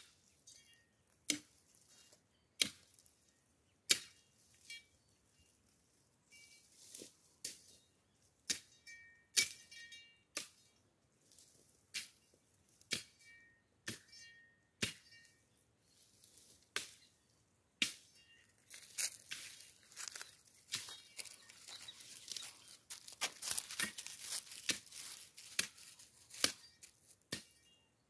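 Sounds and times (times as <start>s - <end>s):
machete chopping brush: 18.9s - 27.5s.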